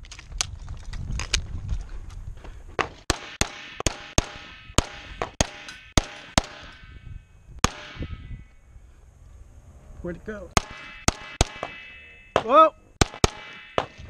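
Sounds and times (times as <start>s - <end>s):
metallic ringing: 3.1s - 9.0s, 10.6s - 14.0s
rapid pistol shots: 10.6s - 14.0s.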